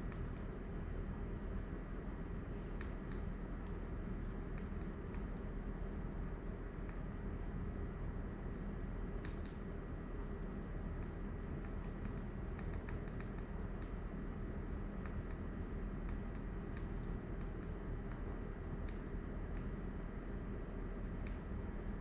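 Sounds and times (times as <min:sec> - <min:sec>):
steady low hum: 0:00.0 - 0:22.0
light clicks: 0:00.1 - 0:00.6, 0:02.8 - 0:03.9, 0:04.5 - 0:05.6, 0:06.8 - 0:07.3, 0:09.1 - 0:09.7, 0:11.0 - 0:14.0, 0:15.0 - 0:19.8, 0:21.2 - 0:21.5.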